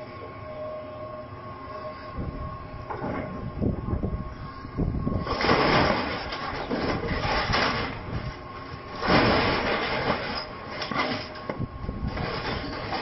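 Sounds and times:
metal creaking and crunching: 5.0s - 13.0s.

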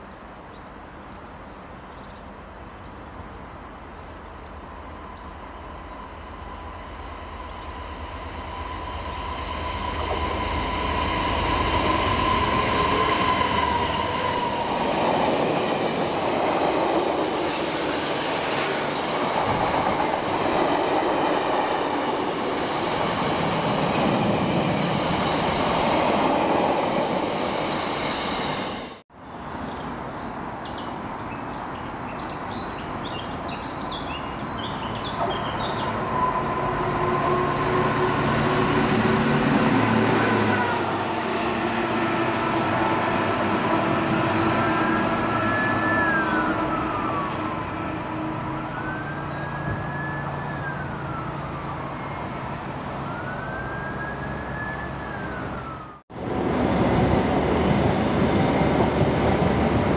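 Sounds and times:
freight train rushing past: 4.4s - 29.0s, 34.7s - 59.9s
siren wailing: 44.5s - 56.0s.

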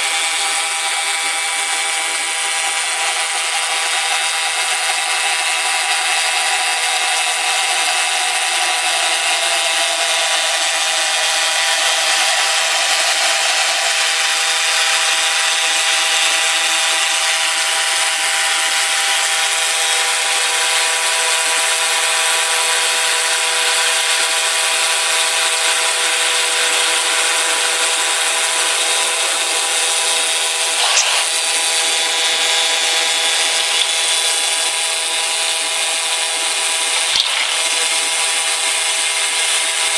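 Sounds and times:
laser cutter hissing: 22.4s - 39.9s.

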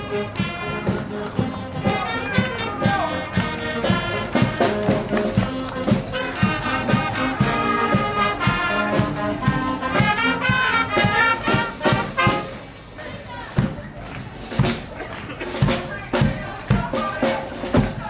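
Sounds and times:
marching wind band playing: 0.0s - 18.0s.

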